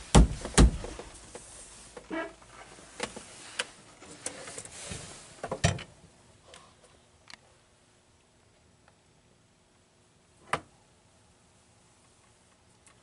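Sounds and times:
trim cover knocks: 0:00.1 - 0:01.1.

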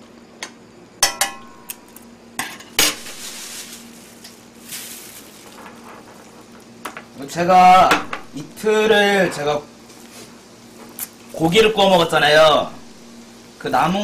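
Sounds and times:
metal utensil clinking on pan: 0:01.0 - 0:01.7
plastic bag crinkling: 0:03.0 - 0:06.8.

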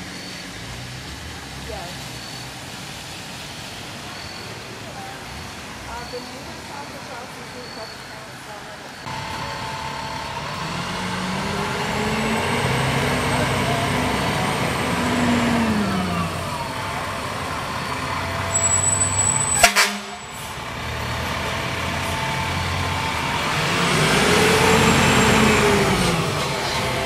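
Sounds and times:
diesel engines running: 0:00.0 - 0:27.0
fire engine driving past: 0:00.0 - 0:27.0.

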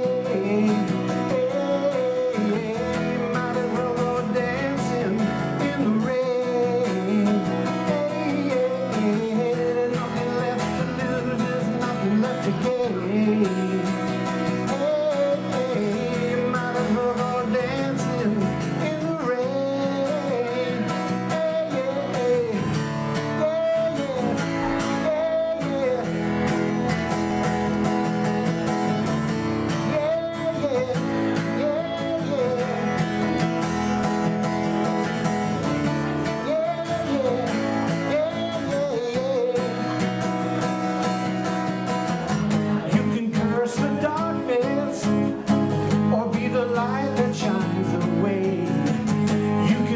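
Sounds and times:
acoustic guitar strumming: 0:00.0 - 0:49.9
man singing: 0:00.0 - 0:49.9.

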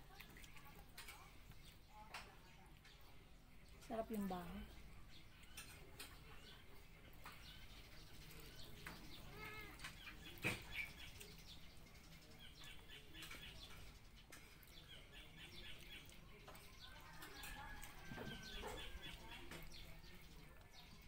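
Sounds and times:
faint bird chirping: 0:00.1 - 0:21.0.

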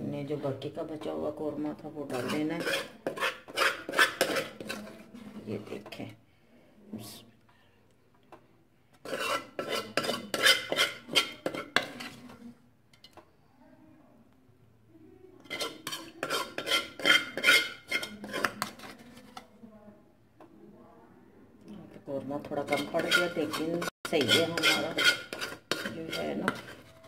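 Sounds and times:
metal spoon scraping pot: 0:01.9 - 0:06.2, 0:09.0 - 0:13.2, 0:15.4 - 0:19.6, 0:22.4 - 0:27.0.

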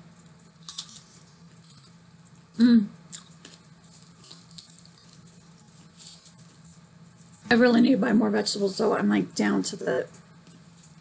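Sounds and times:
faint low hum: 0:00.0 - 0:11.0
chewing crunchy chip: 0:00.1 - 0:02.4, 0:03.0 - 0:07.4
person humming mm: 0:02.6 - 0:03.0.

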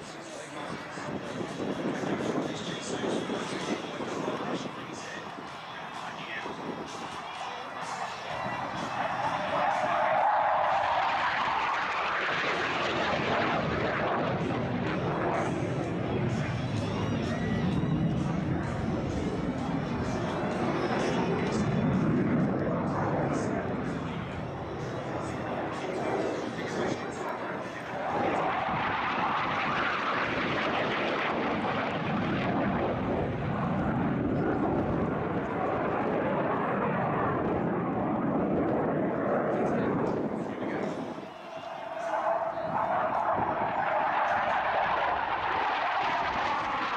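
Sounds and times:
jet aircraft flying overhead: 0:00.0 - 0:46.9.

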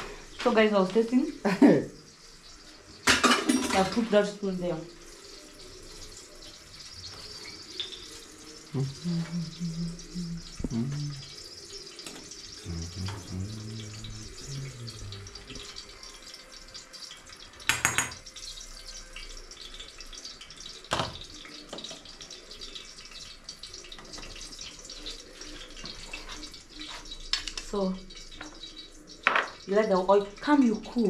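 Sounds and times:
pot hissing on a gas stove: 0:00.0 - 0:31.0
kitchen utensils clattering: 0:03.0 - 0:04.3.

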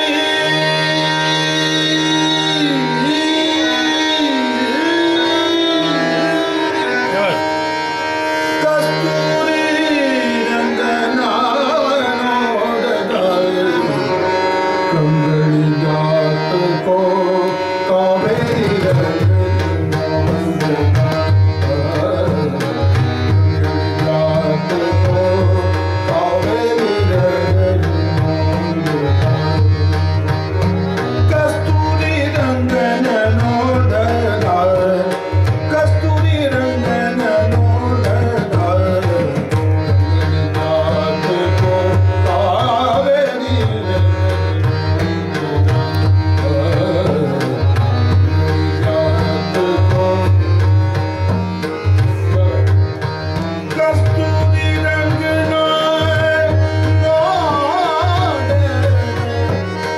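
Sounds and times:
harmonium: 0:00.0 - 0:59.9
man singing: 0:00.0 - 0:59.9
tabla drumming: 0:00.0 - 0:59.9.

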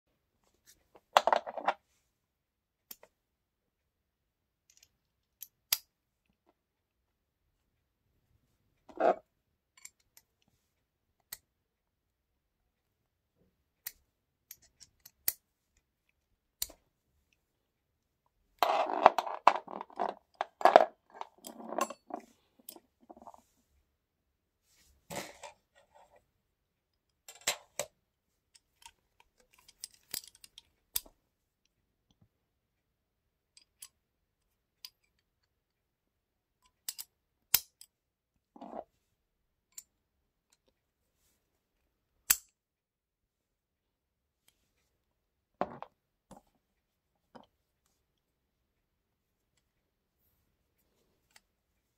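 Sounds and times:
steel tool parts clicking and clinking: 0:18.6 - 0:22.8, 0:28.8 - 0:31.1, 0:36.7 - 0:37.9.

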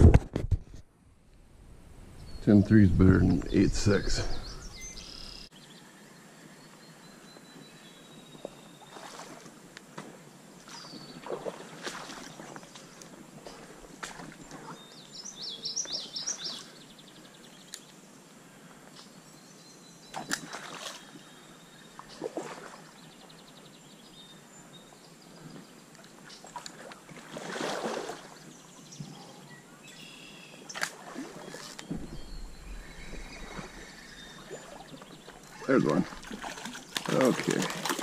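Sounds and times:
songbird chirping: 0:01.3 - 0:09.9, 0:10.6 - 0:27.0, 0:28.2 - 0:38.0
faint bird trills: 0:29.9 - 0:37.0.

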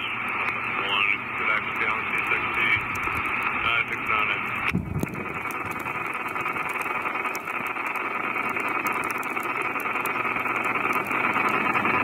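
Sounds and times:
radio static hiss with crackles: 0:00.0 - 0:12.0.

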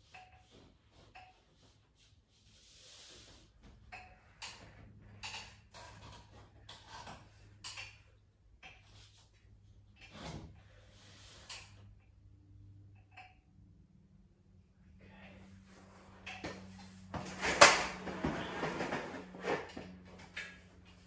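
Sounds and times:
low steady hum: 0:03.6 - 0:21.0
plasterboard scraping: 0:17.1 - 0:20.1.

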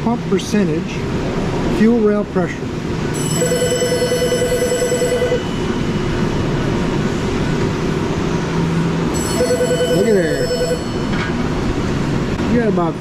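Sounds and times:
low background hum: 0:00.0 - 0:13.0
telephone ringing: 0:03.1 - 0:05.9, 0:09.1 - 0:11.2.

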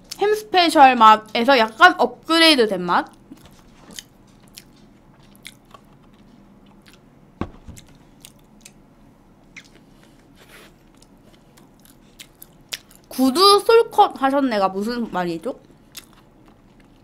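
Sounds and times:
chewing a toasted sandwich: 0:03.1 - 0:07.1, 0:07.8 - 0:08.8, 0:09.4 - 0:13.1, 0:15.6 - 0:17.0
knock: 0:07.4 - 0:07.8.

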